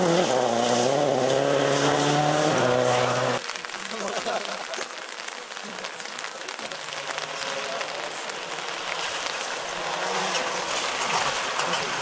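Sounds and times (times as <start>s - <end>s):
rally car engine approaching: 0.0s - 3.4s
steady hiss: 3.4s - 10.2s.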